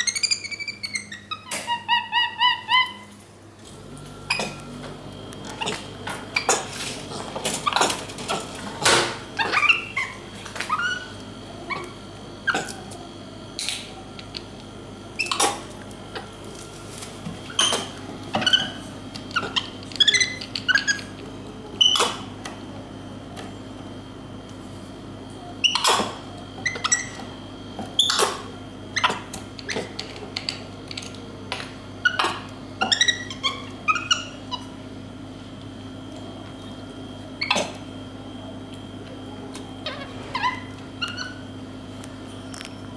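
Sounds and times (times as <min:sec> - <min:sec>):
steady low hum: 0:00.0 - 0:42.9
monkey squeaky chirps: 0:19.4 - 0:21.1.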